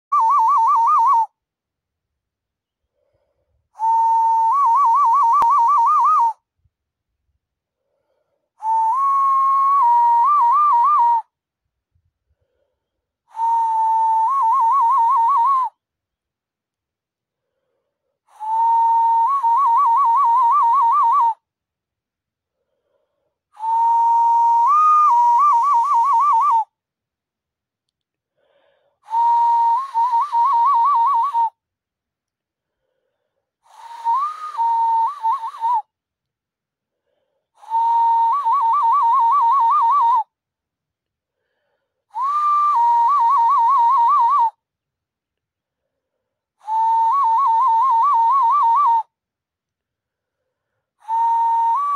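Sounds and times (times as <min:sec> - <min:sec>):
warbling hand whistle: 0:00.1 - 0:01.4, 0:03.8 - 0:06.5, 0:08.6 - 0:11.4, 0:13.3 - 0:15.8, 0:18.3 - 0:21.4, 0:23.6 - 0:26.8, 0:29.1 - 0:31.6, 0:33.7 - 0:36.0, 0:37.6 - 0:40.4, 0:42.1 - 0:44.6, 0:46.6 - 0:49.2, 0:51.0 - 0:51.9.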